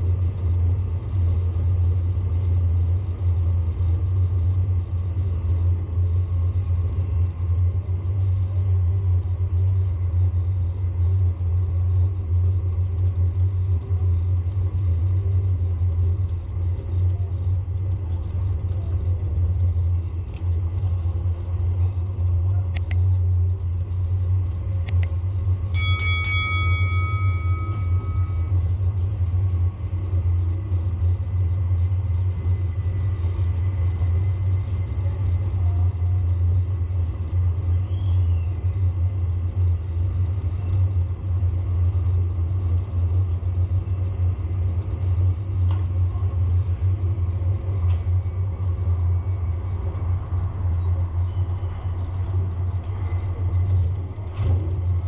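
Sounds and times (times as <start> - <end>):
road rumble: 0.0 - 55.0
high tone with overtones: 25.8 - 28.6.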